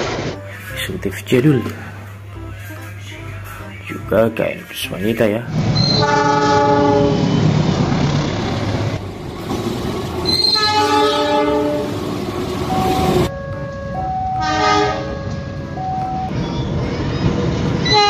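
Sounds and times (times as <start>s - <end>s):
engines and wheels rumbling on rails: 0.0s - 1.2s, 4.9s - 18.0s
locomotive horn blasts: 5.8s - 7.3s, 10.3s - 12.0s, 12.8s - 16.2s.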